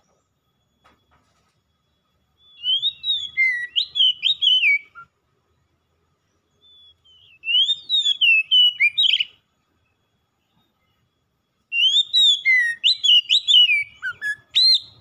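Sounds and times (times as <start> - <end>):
bird singing whistled phrases: 2.3 - 5.2, 6.5 - 15.0.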